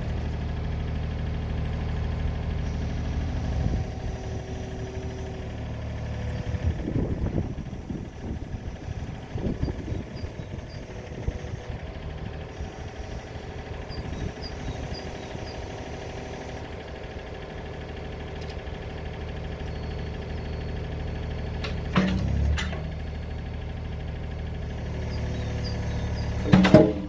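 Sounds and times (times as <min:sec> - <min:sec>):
excavator diesel engine running: 0:00.0 - 0:27.0
bucket clunk and scrape: 0:26.4 - 0:27.0.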